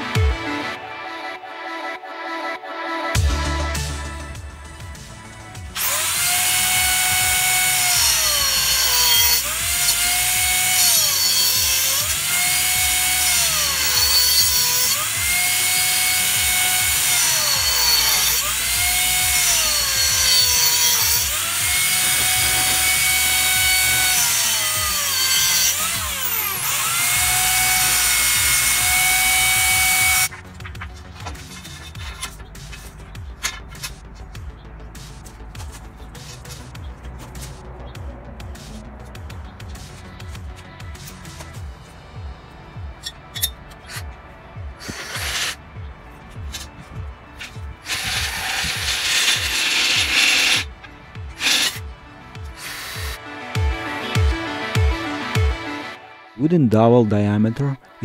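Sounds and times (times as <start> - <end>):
rotary tool cutting metal: 5.8 - 30.3, 43.0 - 44.1, 44.8 - 45.6, 47.4 - 50.7, 51.3 - 51.8, 52.5 - 53.2.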